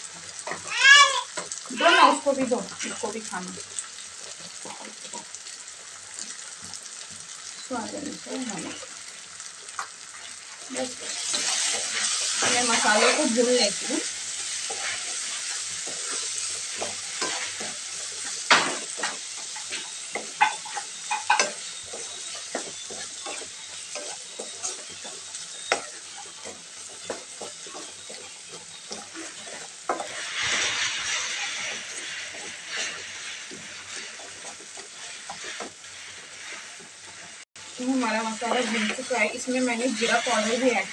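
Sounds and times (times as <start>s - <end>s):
food sizzling in oil: 0.0s - 40.9s
wooden spatula scraping: 10.1s - 40.9s.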